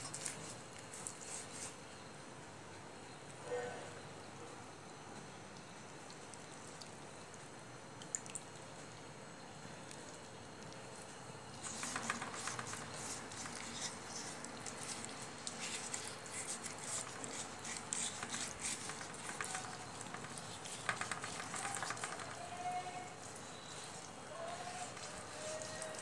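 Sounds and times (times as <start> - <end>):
damp cloth scrubbing wet clay: 11.6 - 26.0.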